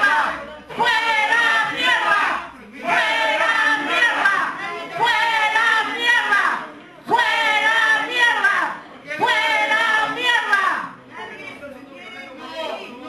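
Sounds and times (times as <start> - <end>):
voices shouting or chanting: 0.0 - 11.0.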